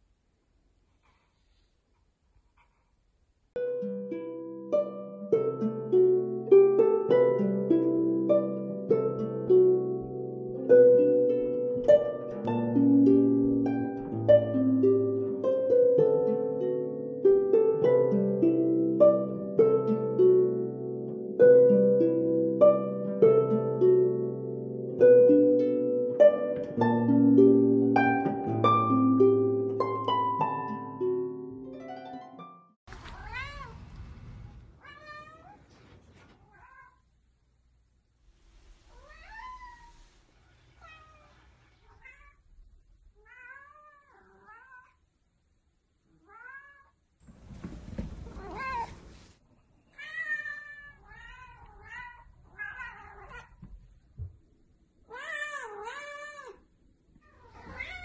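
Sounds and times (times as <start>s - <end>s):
plucked harp music: 3.6s - 32.8s
cat meowing: 33.0s - 33.8s, 34.8s - 35.7s, 36.4s - 37.0s, 38.9s - 40.1s, 40.8s - 42.5s, 43.2s - 45.0s, 46.2s - 47.0s, 48.3s - 49.0s, 49.9s - 53.7s, 55.1s - 56.6s, 57.2s - 58.0s.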